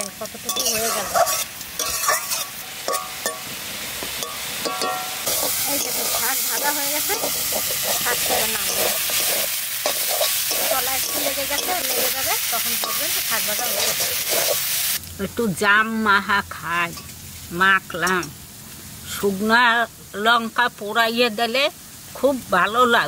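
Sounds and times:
greens sizzling in oil: 0.0 - 23.0
metal spatula scraping a wok: 0.3 - 15.0.

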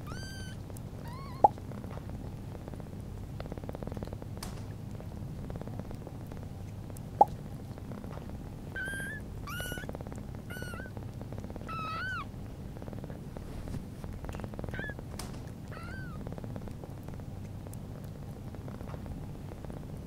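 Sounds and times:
kittens mewing: 0.0 - 1.6, 8.7 - 12.4, 14.6 - 16.2
cat purring: 0.0 - 20.0.

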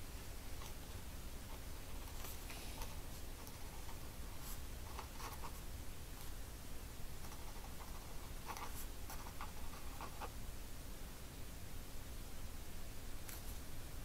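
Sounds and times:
faint room hiss: 0.0 - 14.0
pen scratching on paper: 1.5 - 5.6, 7.2 - 10.3.

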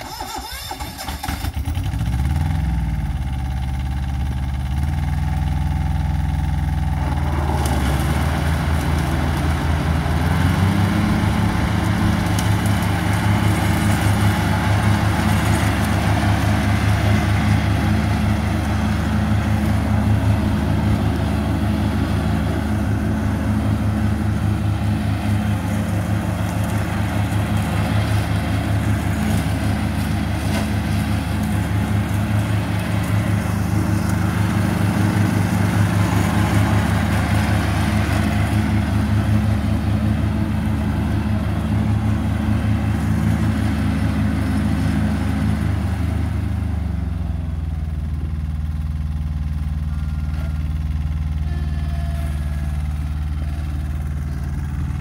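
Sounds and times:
ride-on mower engine running: 0.0 - 55.0.

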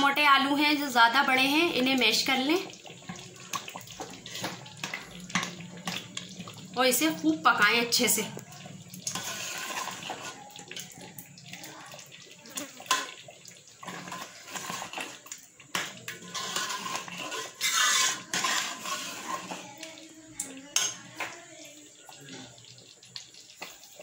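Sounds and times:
ladle stirring wet curry: 0.4 - 24.0
ladle scraping metal pot: 1.8 - 6.6, 7.9 - 11.1, 12.6 - 19.9, 20.7 - 21.4.

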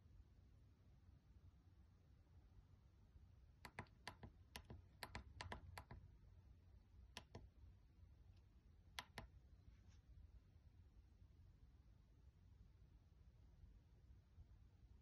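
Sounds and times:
push buttons clicking faintly: 7.2 - 7.5, 9.0 - 9.3.

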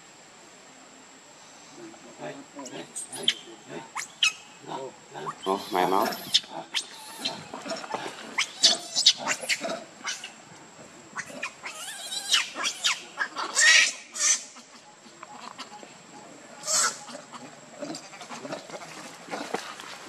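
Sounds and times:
monkeys squealing and chirping: 5.2 - 7.8, 8.4 - 10.4, 11.2 - 14.7, 16.6 - 17.4.

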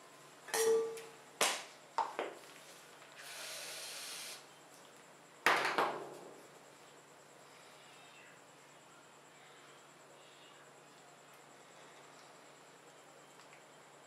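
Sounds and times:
aerosol can spraying hiss: 3.2 - 4.4.

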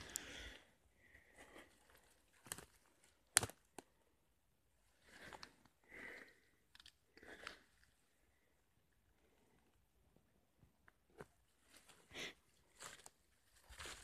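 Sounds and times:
twig cracking: 1.9 - 3.9, 6.7 - 7.6.

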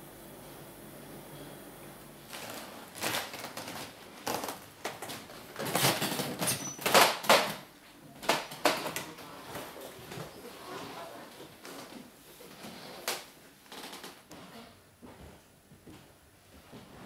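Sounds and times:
footsteps on wooden floor: 14.3 - 17.0.

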